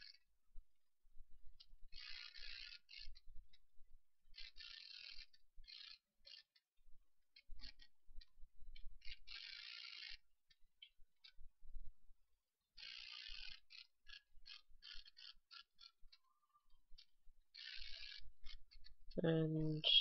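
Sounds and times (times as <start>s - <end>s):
rasping ratchet-like bursts: 2.0s - 3.2s, 4.3s - 6.6s, 7.4s - 7.9s, 9.0s - 10.2s, 12.8s - 18.9s.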